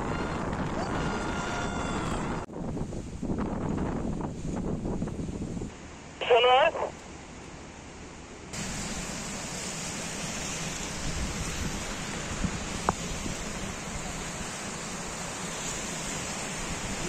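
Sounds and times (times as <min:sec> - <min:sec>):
wind rumbling on microphone: 0:00.0 - 0:05.7, 0:10.8 - 0:14.2.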